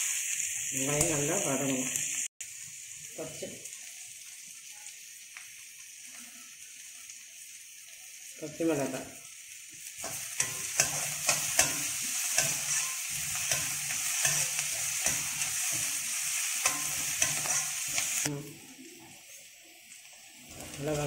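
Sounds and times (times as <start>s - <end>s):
onions sizzling in hot oil: 0.0s - 21.0s
metal ladle scraping pan: 10.0s - 18.3s.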